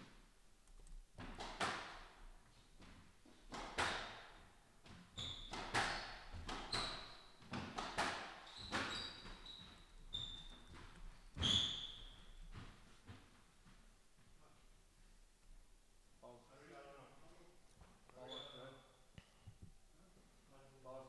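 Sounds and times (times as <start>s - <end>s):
squash ball hitting rackets and walls: 1.2s - 13.6s
shoes squeaking on wooden floor: 4.8s - 7.8s, 8.4s - 14.3s, 17.8s - 18.9s.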